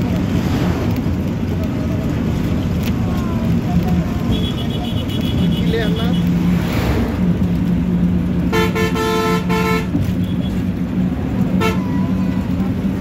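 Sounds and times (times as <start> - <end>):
bus engine droning: 0.0 - 13.0
vehicle horn honking: 4.3 - 6.0, 8.5 - 10.5, 11.6 - 11.9.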